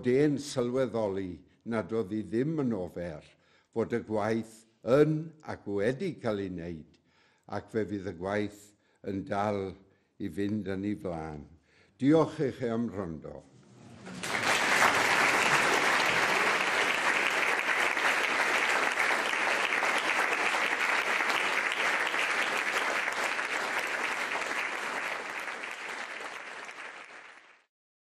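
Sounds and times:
audience applauding: 14.0s - 27.7s.

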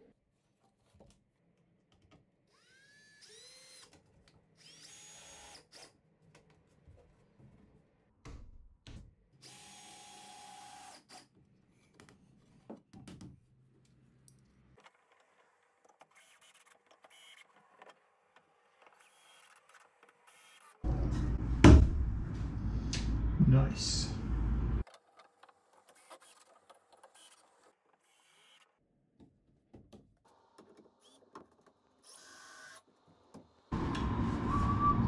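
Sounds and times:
cordless drill whine: 2.5s - 3.9s.

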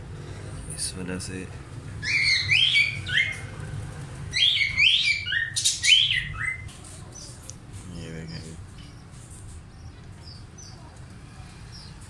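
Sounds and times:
budgerigar chirping: 2.0s - 3.5s, 4.3s - 6.6s.

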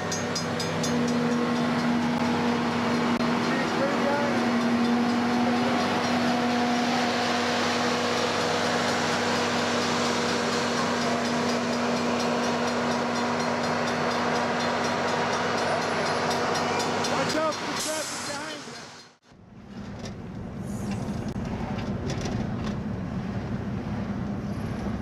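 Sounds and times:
crossing signal bell ringing: 0.0s - 18.8s
machine engine drone: 0.0s - 18.8s
wheels rumbling on rails: 0.0s - 25.0s.

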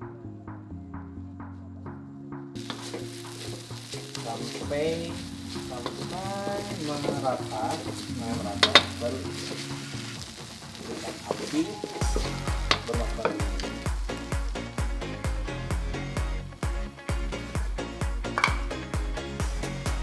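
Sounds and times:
spatula clacking on wok: 2.6s - 4.6s, 8.6s - 9.6s, 18.4s - 18.8s
spatula scraping and tossing: 2.6s - 14.4s
noodles sizzling in a wok: 2.6s - 16.1s.

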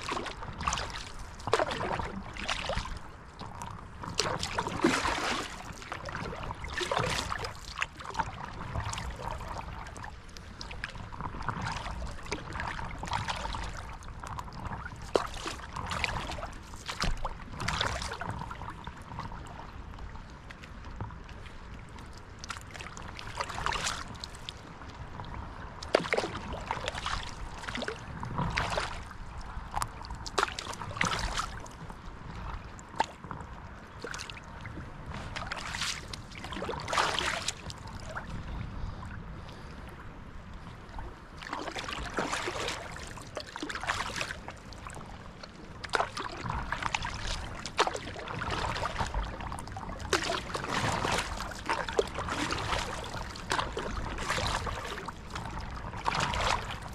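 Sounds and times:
paddle strokes splashing: 0.0s - 40.0s, 40.8s - 56.9s.

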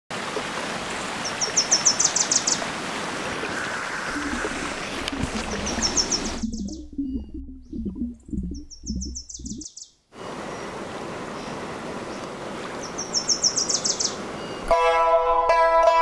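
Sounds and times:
running water rushing: 0.1s - 8.4s, 10.2s - 14.6s
low burbling: 3.5s - 9.6s
songbird trilling: 4.1s - 10.0s, 12.8s - 14.7s.

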